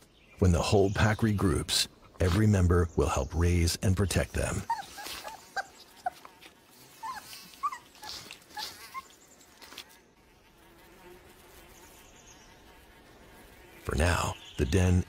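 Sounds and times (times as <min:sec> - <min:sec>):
wolf pups squeaking and whimpering: 0:04.5 - 0:09.7
faint steady buzz: 0:05.7 - 0:15.0.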